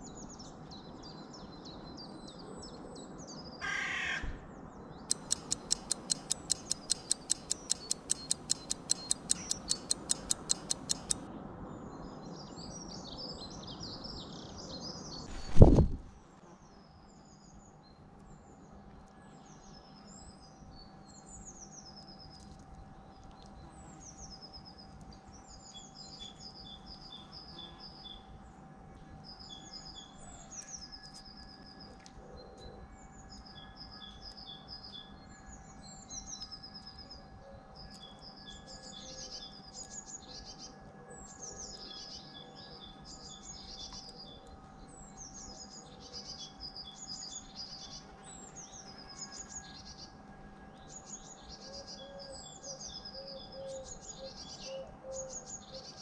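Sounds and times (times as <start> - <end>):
songbirds trilling: 5.1 - 11.2, 29.4 - 56.0.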